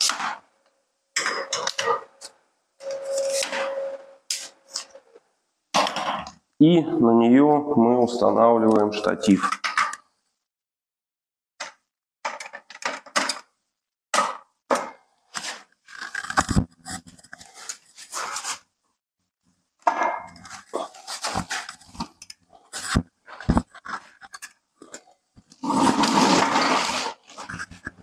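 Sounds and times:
metal tripod clicking and scraping: 15.4s - 18.4s, 20.3s - 28.0s.

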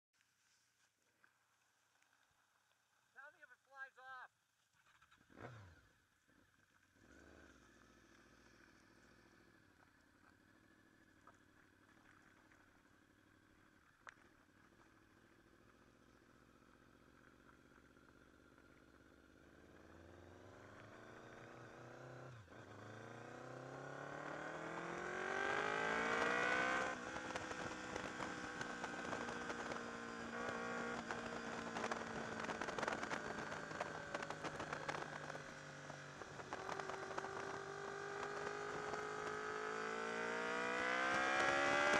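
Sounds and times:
motorcycle engine revving: 4.8s - 6.0s, 7.0s - 9.8s, 18.4s - 41.9s.

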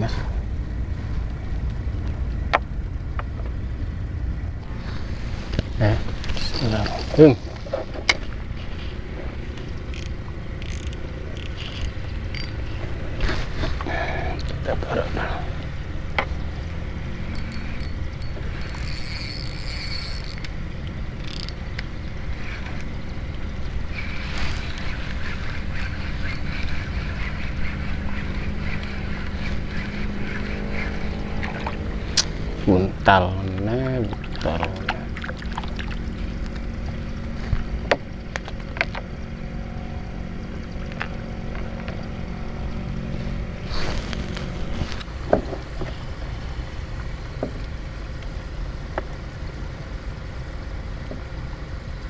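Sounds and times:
boat engine droning: 0.0s - 52.0s
fishing reel clicks and rustles: 5.8s - 13.8s, 17.1s - 32.4s, 33.4s - 42.4s.

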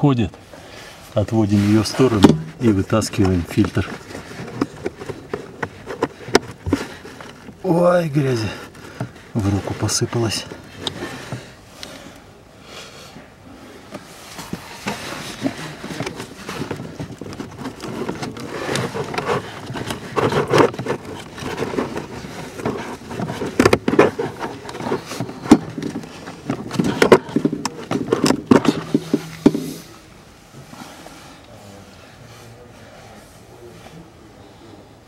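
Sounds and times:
filter scraping and rustling in housing: 1.0s - 12.0s, 13.9s - 31.5s
sharp plastic clicks and knocks: 15.4s - 29.6s.

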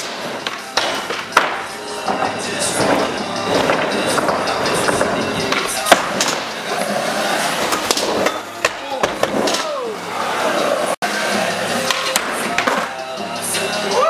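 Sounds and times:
skateboard knocking and clacking: 0.0s - 6.8s
skateboard wheels rolling on concrete: 0.0s - 14.0s.

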